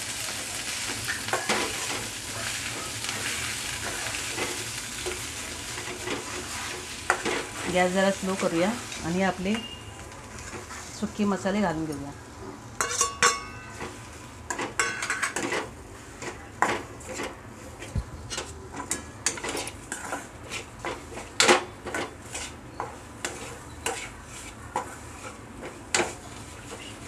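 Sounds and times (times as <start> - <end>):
steel spoon scraping a pan: 12.8 - 27.0.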